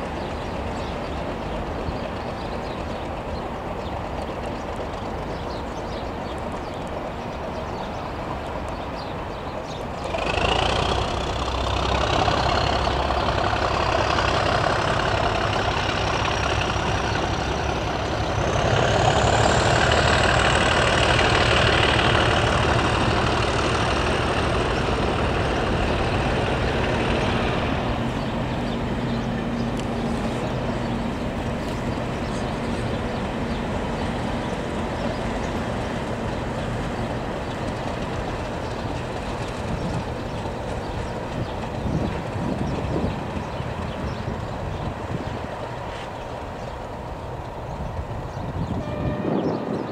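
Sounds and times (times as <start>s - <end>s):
diesel locomotive engine: 0.0s - 49.9s.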